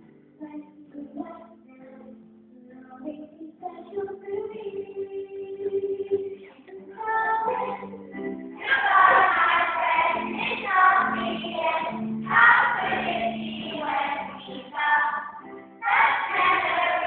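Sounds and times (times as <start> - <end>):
children's choir singing: 6.9 - 17.0.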